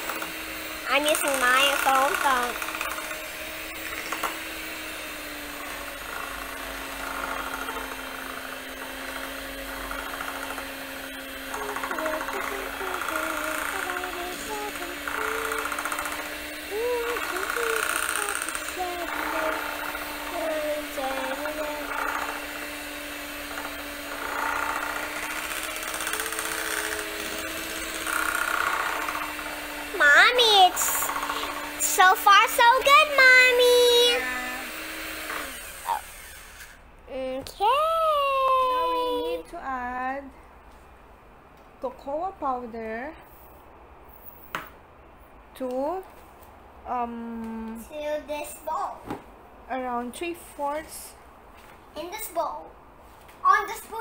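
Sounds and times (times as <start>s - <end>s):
electric hand mixer whirring: 0.0s - 36.9s.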